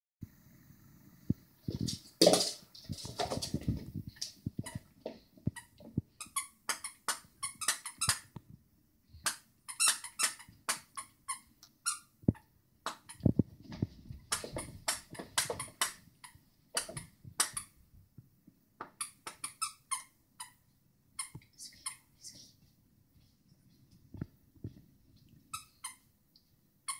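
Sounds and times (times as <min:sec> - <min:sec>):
squeaky dog toys: 0:06.2 - 0:08.3, 0:09.3 - 0:12.1, 0:19.0 - 0:20.6, 0:25.5 - 0:26.1.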